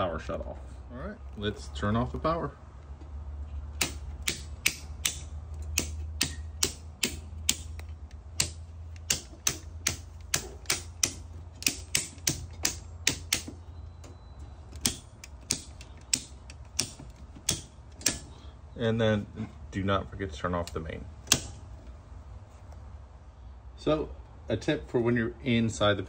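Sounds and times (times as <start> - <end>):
low steady hum: 0.0 - 26.0
circuit breakers snapping clicks: 3.8 - 13.6, 14.8 - 18.2, 20.6 - 21.6.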